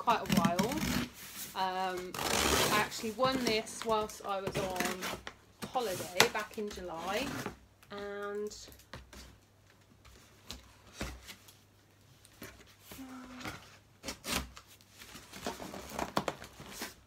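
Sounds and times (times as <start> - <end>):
scissors cutting cardboard: 0.1 - 1.1, 14.0 - 14.6.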